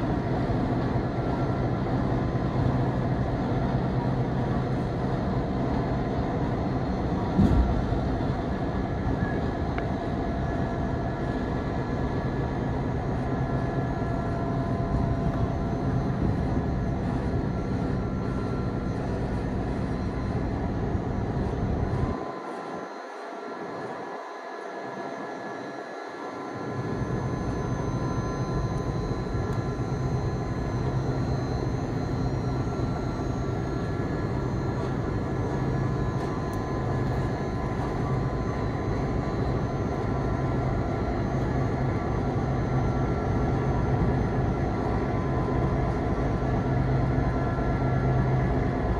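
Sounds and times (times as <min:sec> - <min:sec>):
diesel locomotive engine rumbling: 0:00.0 - 0:22.7.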